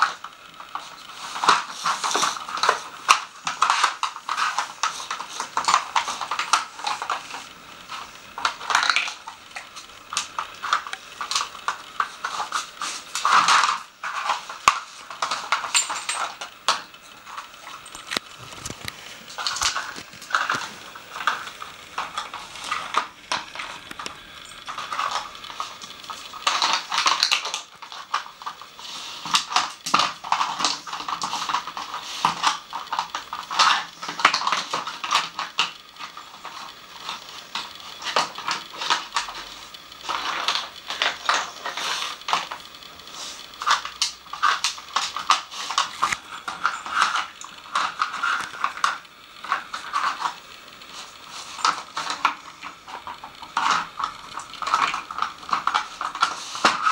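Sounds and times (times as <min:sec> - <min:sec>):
plastic pieces knocking and clattering: 0:00.0 - 0:56.9.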